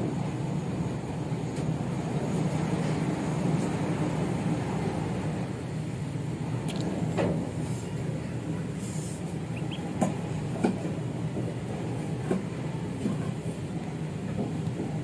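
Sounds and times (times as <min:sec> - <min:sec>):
steady low hum: 0:00.0 - 0:15.0
chicks peeping: 0:09.4 - 0:10.2
chicks pecking feed: 0:09.6 - 0:10.7.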